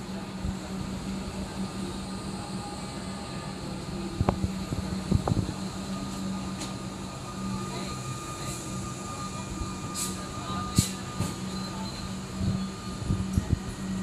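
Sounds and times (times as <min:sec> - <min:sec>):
electric train passing with hum: 0:00.0 - 0:14.0.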